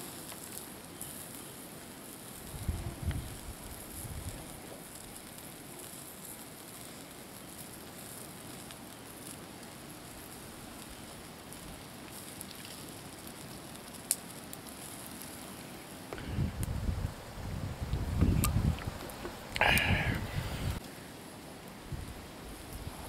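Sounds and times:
campfire hissing and crackling: 0.0 - 23.0
fire popping: 0.0 - 23.0
low rumbling noise: 16.2 - 20.8.

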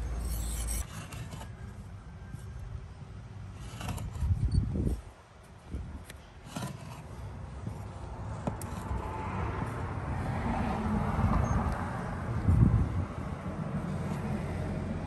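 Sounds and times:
steady rumbling noise: 7.2 - 15.0.

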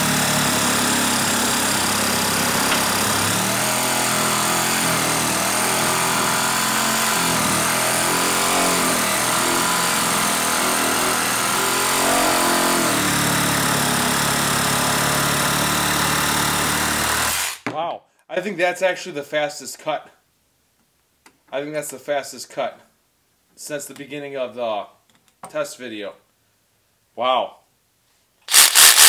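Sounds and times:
reciprocating saw cutting wood: 0.0 - 17.6, 28.5 - 29.0.

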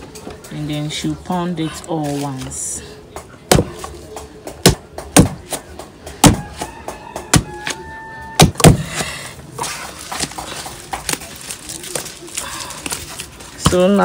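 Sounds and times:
pestle pounding dough in mortar: 3.1 - 7.8, 8.4 - 9.0.

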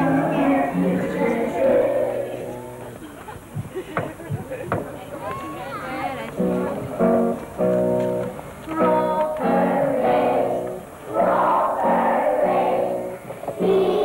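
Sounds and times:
children singing together: 0.0 - 2.8, 8.7 - 14.0.

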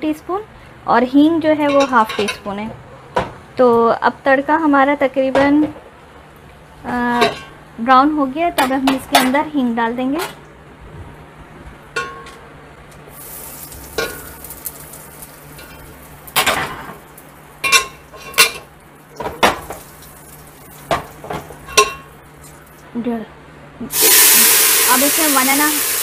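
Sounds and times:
spices sizzling in hot oil: 13.1 - 22.8, 23.9 - 26.0.

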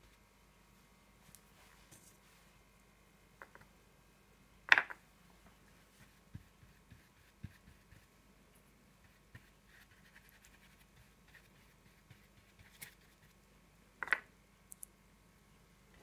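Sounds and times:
brush dabbing on wet paper: 5.7 - 8.1, 9.0 - 13.4.

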